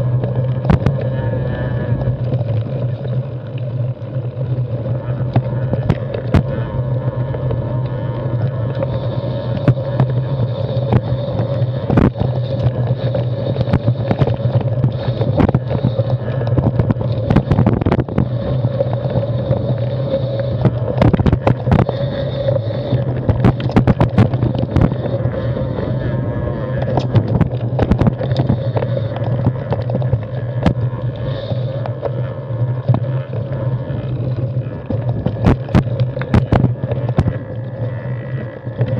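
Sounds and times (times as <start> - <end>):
mountain bike tyre rumble: 0.0 - 38.9
bike rattling over rocks: 26.6 - 30.9.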